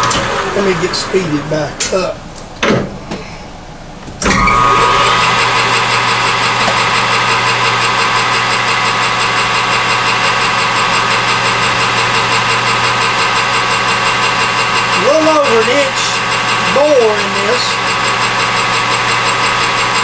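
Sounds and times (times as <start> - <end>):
metal lathe whine: 4.2 - 20.0.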